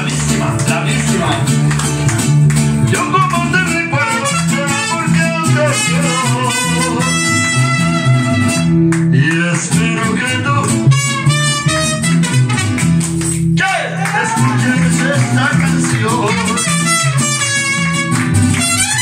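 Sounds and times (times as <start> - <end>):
mariachi band playing: 0.0 - 19.0.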